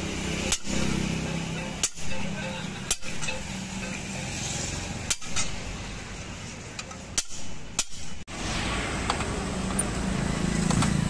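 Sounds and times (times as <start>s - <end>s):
steady background noise: 0.0s - 11.0s
hammer striking iron sheet: 0.3s - 5.9s, 7.0s - 8.2s.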